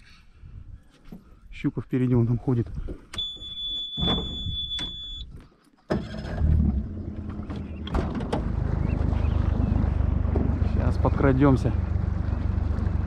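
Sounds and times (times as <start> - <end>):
boat motor running: 6.7 - 13.0.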